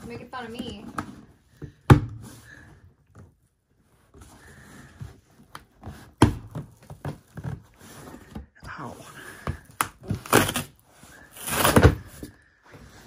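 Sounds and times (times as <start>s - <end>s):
cardboard box being pried open: 11.4s - 12.2s.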